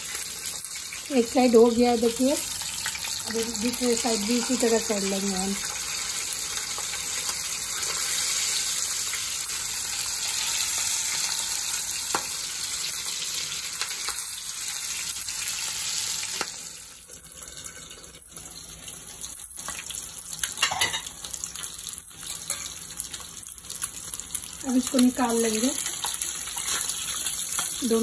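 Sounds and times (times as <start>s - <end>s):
fish sizzling in oil: 0.0s - 28.0s
oil popping and crackling: 18.8s - 28.0s.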